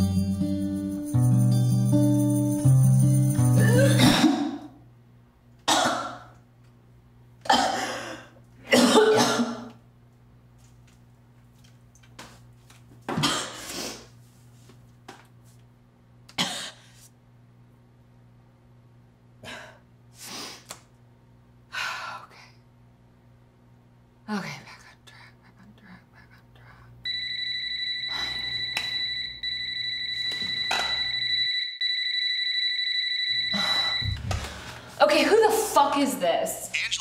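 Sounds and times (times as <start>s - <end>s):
acoustic guitar song: 0.0s - 4.0s
woman retching and coughing: 3.6s - 4.8s, 5.7s - 6.4s, 7.4s - 9.8s, 13.1s - 13.6s, 16.3s - 16.8s
woman breathing: 33.5s - 35.0s.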